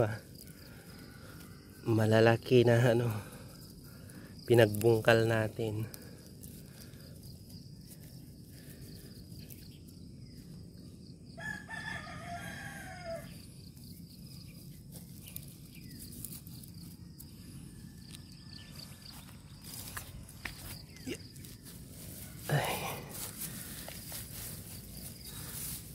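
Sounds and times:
rooster crowing: 11.4 - 13.5
faint rustling: 19.0 - 25.9.

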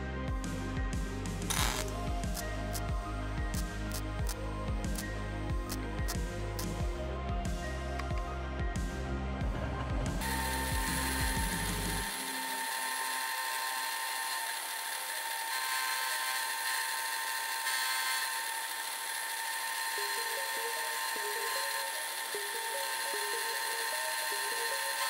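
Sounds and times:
milling machine cutting steel: 1.5 - 2.9, 10.2 - 25.0.

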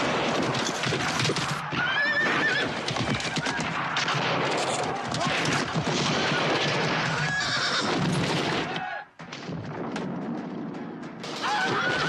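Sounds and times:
loud battle noise: 0.0 - 12.0
sharp cracks: 0.0 - 12.0
horses neighing: 1.6 - 3.8, 7.0 - 8.1.

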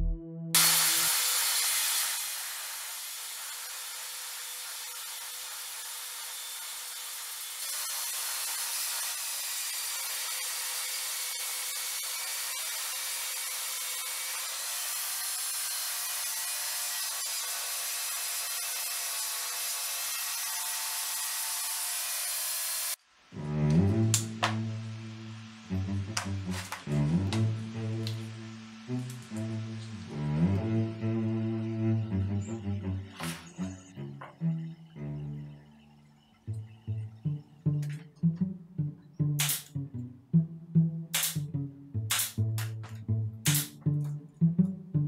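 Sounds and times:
cutter shaving wood: 0.6 - 34.8.

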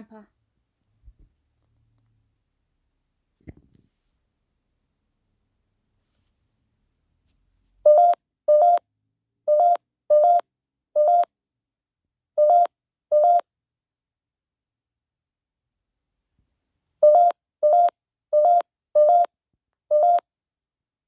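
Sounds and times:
short electronic beeps: 7.9 - 8.8, 11.0 - 11.3, 17.0 - 19.3.

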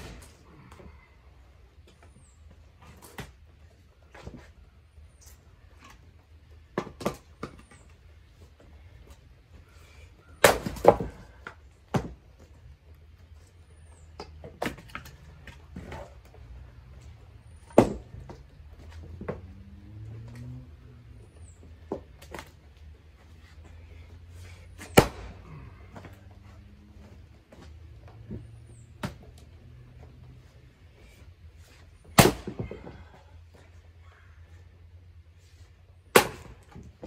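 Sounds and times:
firewood splitting cracks: 6.7 - 7.9, 10.4 - 12.2, 14.1 - 16.2, 17.6 - 18.4, 24.8 - 26.1, 32.1 - 33.1, 36.1 - 37.0.

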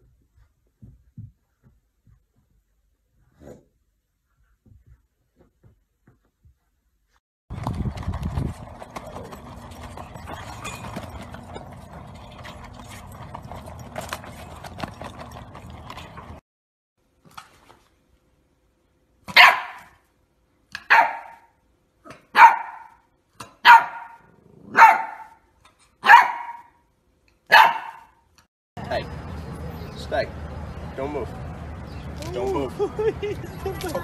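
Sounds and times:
puppy barking: 19.3 - 20.0, 20.8 - 21.5, 22.1 - 23.0, 23.6 - 25.4, 26.0 - 26.8, 27.5 - 28.2.

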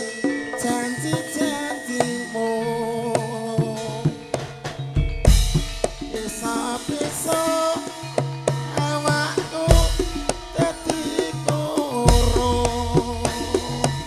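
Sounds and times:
drums beating: 0.0 - 14.0
ringing metal percussion: 0.0 - 14.0
deep bass drum strokes: 12.1 - 14.0.

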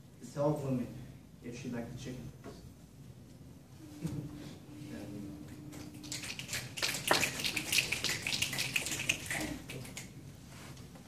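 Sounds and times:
small audience applauding: 5.8 - 10.1.

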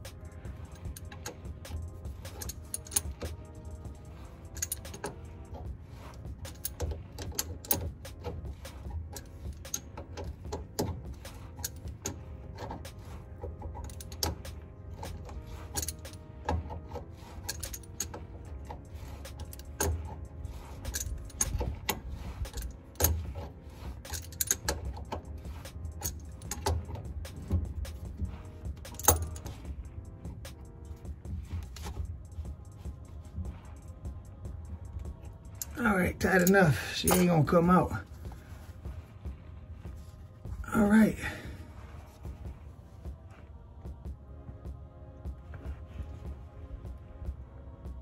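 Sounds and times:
hand tool metallic clicks: 0.0 - 29.7, 34.9 - 37.8.

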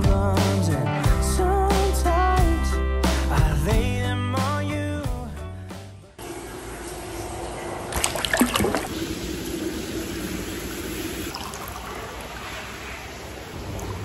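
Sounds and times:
bath water trickling and lapping: 7.9 - 14.0
water splashes: 7.9 - 14.0.

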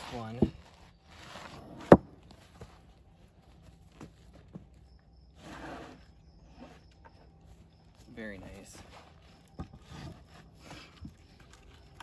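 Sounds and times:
wood scraping on stack: 0.0 - 2.8, 5.3 - 7.2, 8.8 - 11.5
wooden log slices knocking: 1.4 - 2.7.

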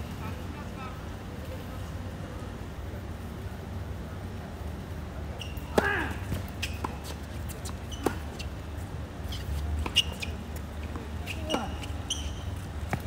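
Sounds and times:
shoe squeaks: 5.4 - 5.8, 6.5 - 8.6, 9.2 - 10.4, 11.2 - 12.7
racket hitting tennis ball: 5.5 - 8.2.

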